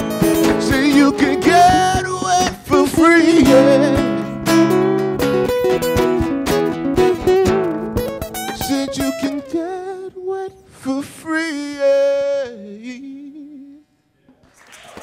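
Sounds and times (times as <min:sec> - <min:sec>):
acoustic guitars strumming: 0:00.0 - 0:12.5
man singing: 0:00.1 - 0:05.0, 0:08.4 - 0:13.9
applause: 0:14.4 - 0:15.0.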